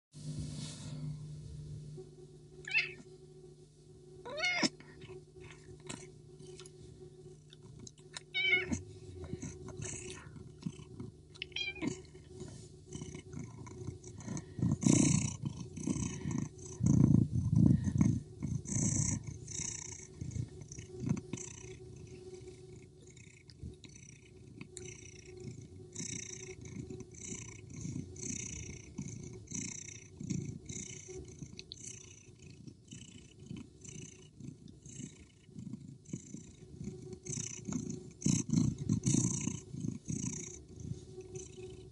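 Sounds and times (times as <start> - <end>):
cats meowing: 2.6 - 3.1, 4.2 - 4.8, 8.2 - 8.8, 11.4 - 12.1.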